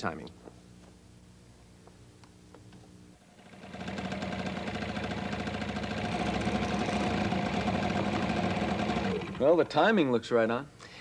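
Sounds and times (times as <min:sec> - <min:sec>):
scooter engine idling: 0:03.4 - 0:09.8.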